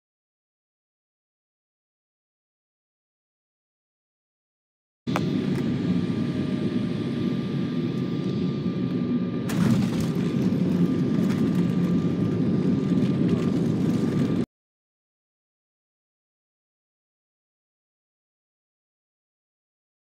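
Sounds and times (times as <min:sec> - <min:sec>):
faint whine: 0:05.1 - 0:14.5
jet engine and airflow rumble: 0:05.1 - 0:14.5.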